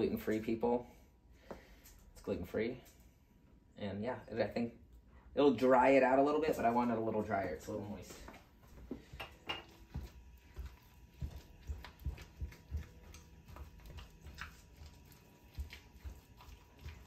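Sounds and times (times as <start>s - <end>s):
spatula stirring in glass bowl: 9.0s - 17.0s.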